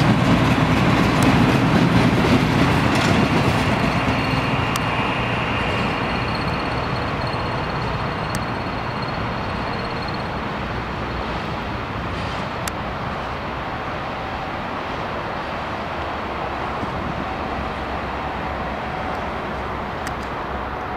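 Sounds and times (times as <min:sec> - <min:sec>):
locomotive engine running: 0:00.0 - 0:20.9
train wheels on rails: 0:00.0 - 0:20.9
thin high squeal: 0:03.8 - 0:10.4.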